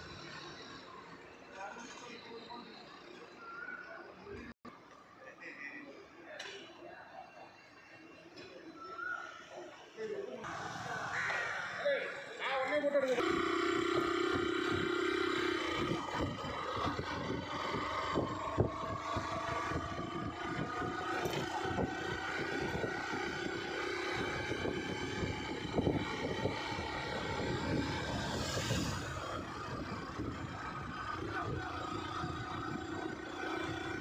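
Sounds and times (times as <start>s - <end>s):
vehicle engine running: 0.0s - 4.6s, 13.0s - 34.0s
wind buffeting microphone: 15.6s - 34.0s.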